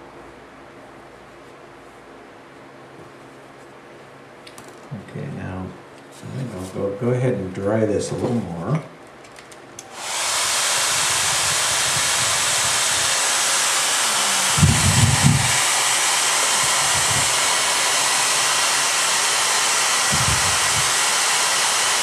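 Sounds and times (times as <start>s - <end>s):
hair dryer blowing: 9.8s - 22.0s.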